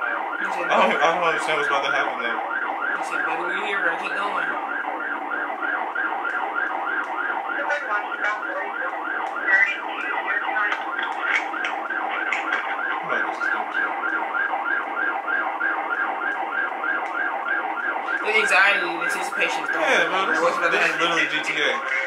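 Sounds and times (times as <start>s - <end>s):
police siren yelping: 0.0s - 22.0s.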